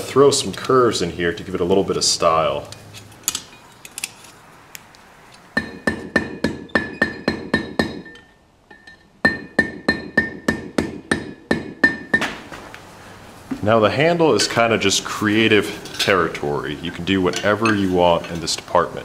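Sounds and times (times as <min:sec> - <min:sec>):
anvil ringing: 0:05.6 - 0:12.4
hammer striking hot steel on anvil: 0:05.6 - 0:12.4.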